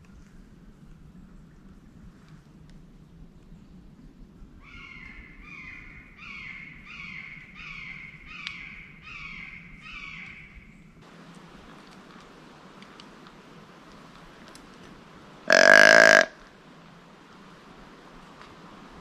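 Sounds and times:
crow cawing: 15.5s - 16.4s.

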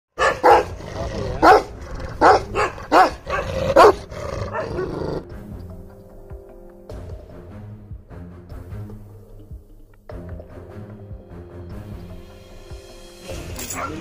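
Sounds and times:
dog barking deeply: 0.2s - 5.3s
quiet music: 0.2s - 14.0s.

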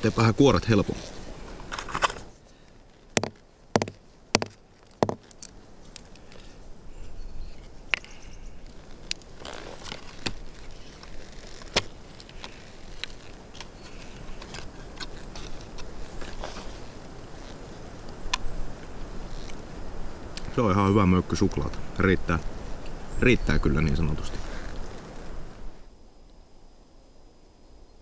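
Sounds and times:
sharp taps on wooden plank: 3.2s - 5.2s
paper wrapper rustling: 8.6s - 17.8s.

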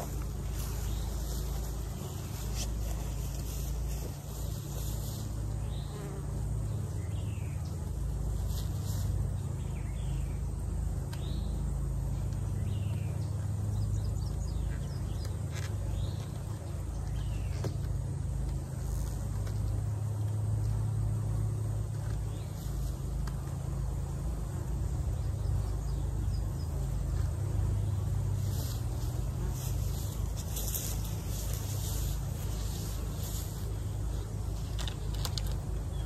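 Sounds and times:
honeybees buzzing: 0.0s - 36.0s.

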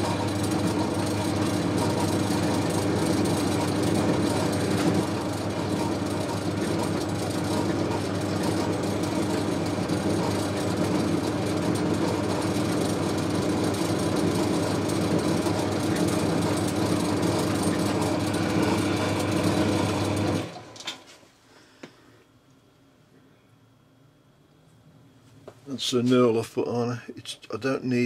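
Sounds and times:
lathe humming and running down: 0.0s - 21.0s.

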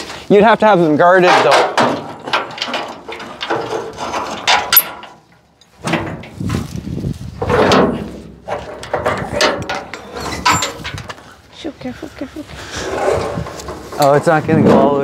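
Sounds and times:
metal chains clanking: 1.2s - 5.8s, 7.6s - 11.1s
metal scraping: 1.2s - 11.2s, 12.6s - 15.0s
sharp metal clack: 4.5s - 5.2s.

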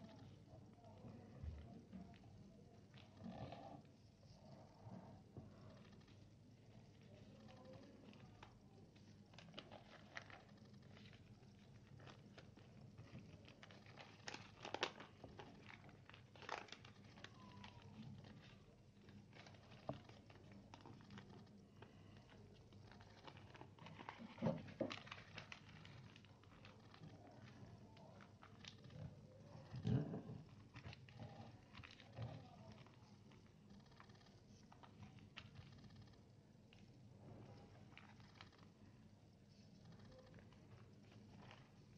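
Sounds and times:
paper crackles: 6.9s - 36.1s
paper rustling and crinkling: 9.3s - 29.0s.

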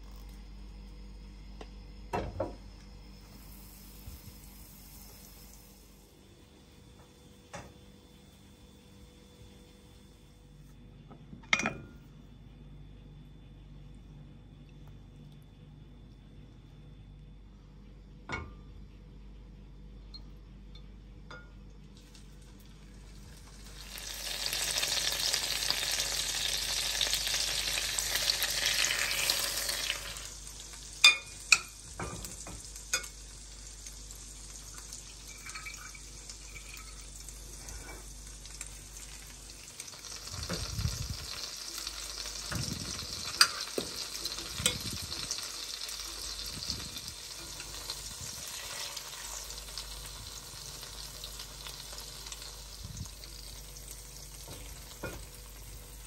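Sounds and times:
bread sizzling in hot oil: 3.0s - 10.1s, 21.9s - 56.0s.

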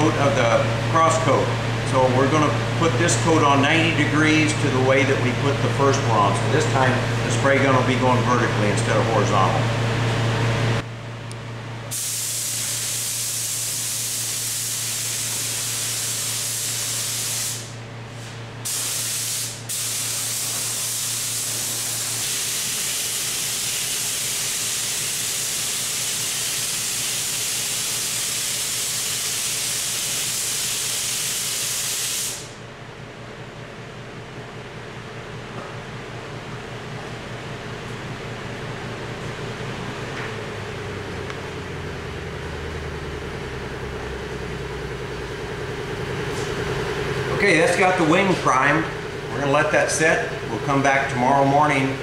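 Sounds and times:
spray gun air hiss: 11.9s - 32.6s.

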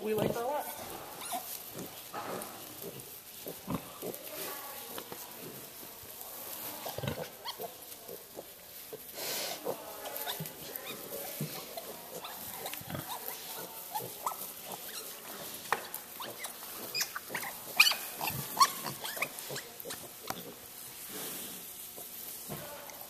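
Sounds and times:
pigs grunting and squeaking: 0.0s - 4.5s, 6.6s - 20.7s.

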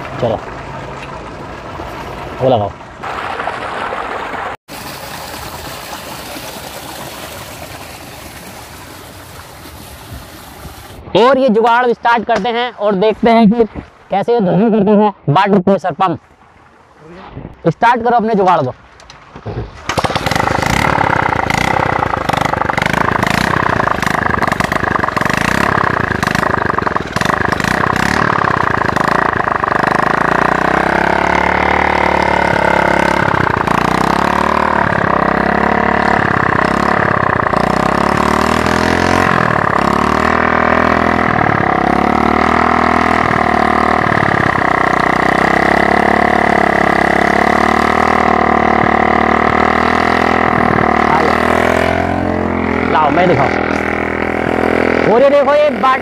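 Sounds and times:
motorcycle engine running steadily: 0.0s - 3.0s, 19.9s - 56.0s
motorcycle engine kick-started: 19.8s - 52.1s.

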